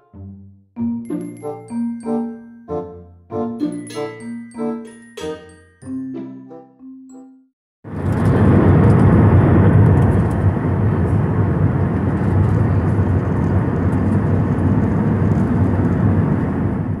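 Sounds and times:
airplane cabin engine roar: 7.9s - 17.0s.

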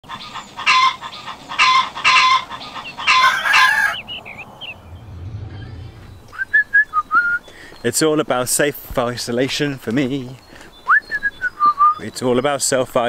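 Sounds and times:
chickens calling harshly: 0.0s - 4.8s.

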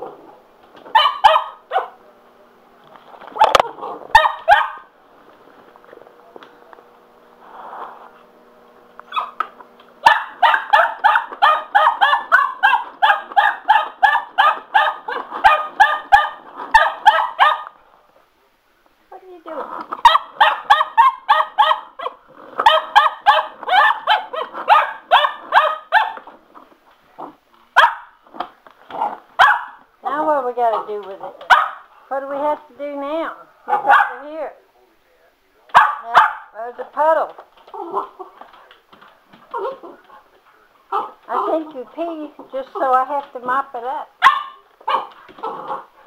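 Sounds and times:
puppy barking rapidly: 0.9s - 2.0s, 3.4s - 4.9s, 9.1s - 17.8s, 20.0s - 26.3s, 27.8s - 28.2s, 29.0s - 29.8s, 30.7s - 31.9s, 33.7s - 34.4s, 35.7s - 36.6s, 40.9s - 41.6s, 44.2s - 45.8s.

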